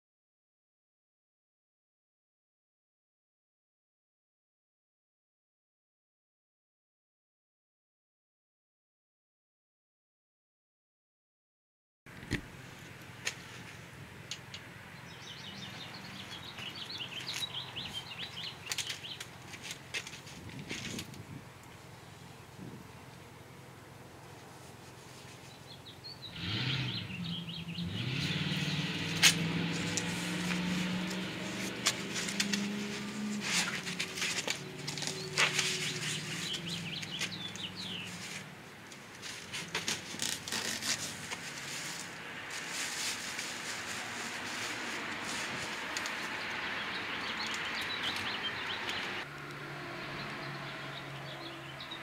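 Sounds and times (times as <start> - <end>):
foam and cardboard rustling: 29.7 - 38.5, 39.2 - 46.3.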